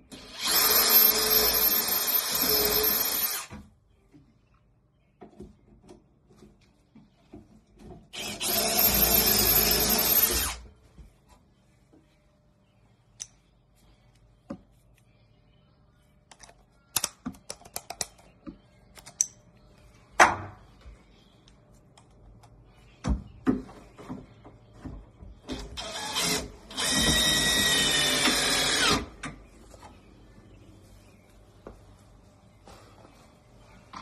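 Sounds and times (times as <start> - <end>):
drill motor whine: 0.2 - 3.5, 8.2 - 10.6, 25.8 - 29.0.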